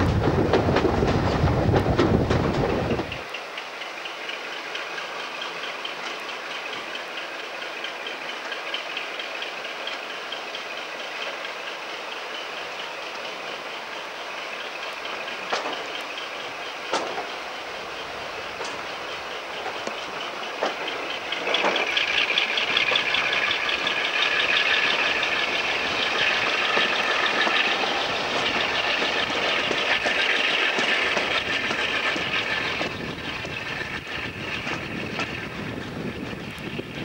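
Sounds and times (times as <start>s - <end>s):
diesel locomotive working under load: 0.0s - 37.0s
train wheels on rails: 0.0s - 37.0s.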